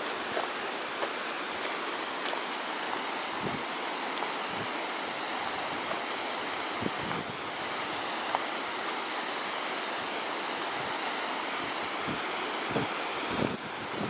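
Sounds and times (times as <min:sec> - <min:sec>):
river rushing over pebbles: 0:00.0 - 0:14.0
wind bumps on microphone: 0:03.4 - 0:03.6, 0:06.8 - 0:07.4, 0:12.0 - 0:14.0.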